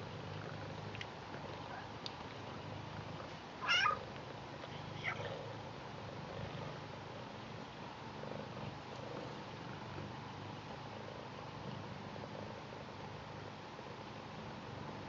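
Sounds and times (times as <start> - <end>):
cat purring: 0.0 - 15.0
cat meowing: 3.6 - 4.0.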